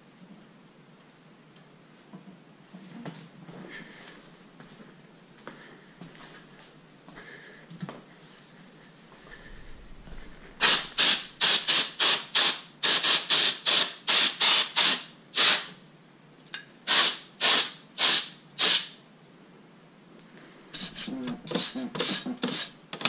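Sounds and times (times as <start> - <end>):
spray bottle squirting: 10.6 - 15.7, 16.9 - 19.0, 20.8 - 22.8.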